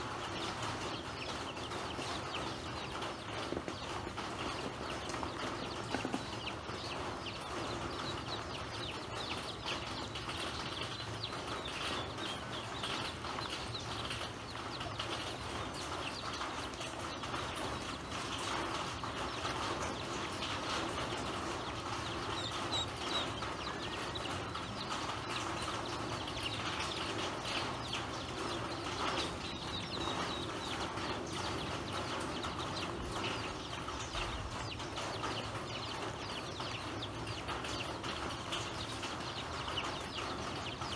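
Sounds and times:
ducklings pecking at grain: 0.0 - 40.9
ducklings peeping: 0.0 - 40.9.

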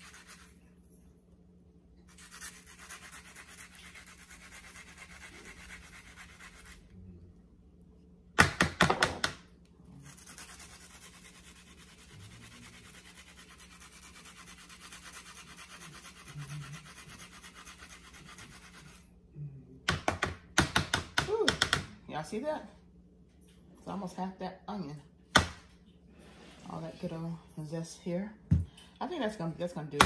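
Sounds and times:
onion rasping on grater: 2.2 - 6.8, 10.0 - 19.0.

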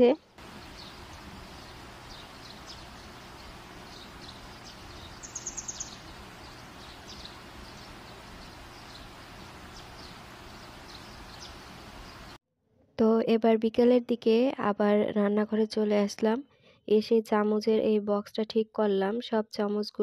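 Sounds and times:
outdoor ambience hiss: 0.0 - 12.4
small birds chirping: 0.2 - 12.4.

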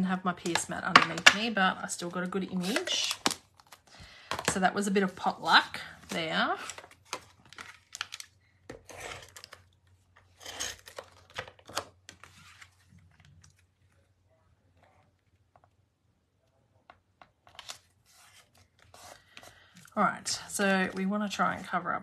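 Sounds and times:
cardstock rustling and scraping: 10.2 - 13.6, 17.4 - 19.8.

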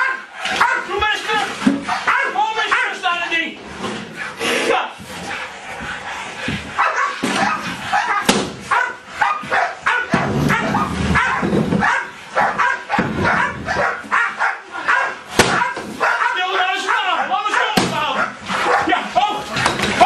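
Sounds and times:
dog barking: 0.0 - 1.0, 1.9 - 3.1, 6.7 - 19.1.

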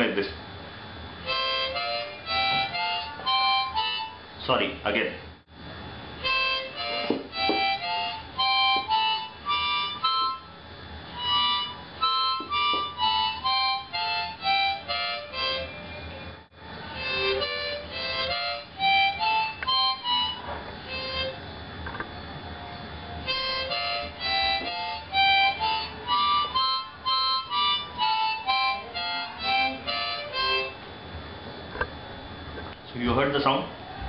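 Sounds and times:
harmonica single notes: 1.2 - 4.3, 6.2 - 21.4, 23.2 - 30.9.

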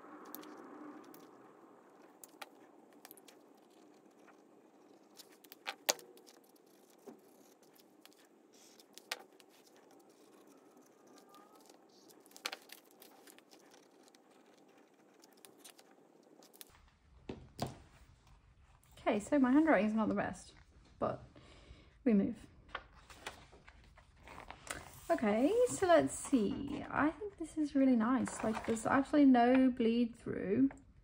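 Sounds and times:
pen scratching on paper: 0.4 - 16.7.

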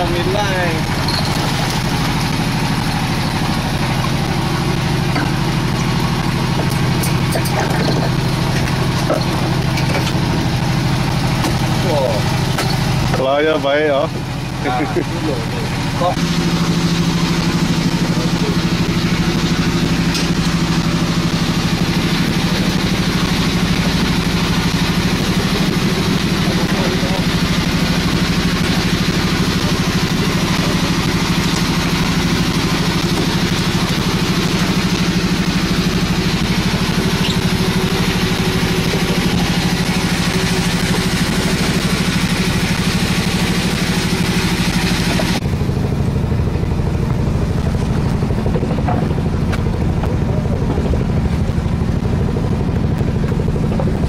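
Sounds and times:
boat engine droning: 0.0 - 54.0.

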